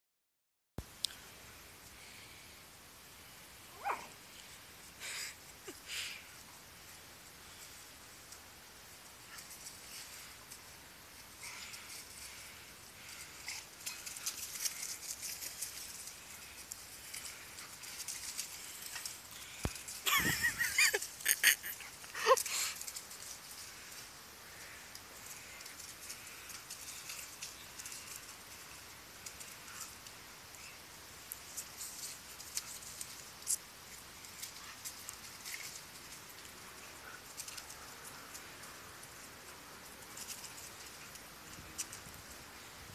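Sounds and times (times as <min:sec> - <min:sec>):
paws rustling through dry leaves: 0:08.9 - 0:42.9
paws scuffing dry leaves: 0:11.2 - 0:21.0.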